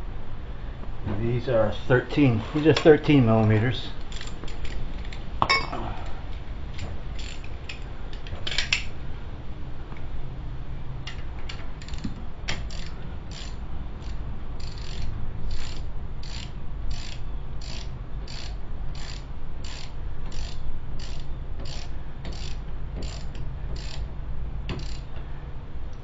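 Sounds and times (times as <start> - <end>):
hand ratchet clicking: 4.0 - 5.2, 6.8 - 8.9, 11.1 - 24.1, 24.7 - 25.2.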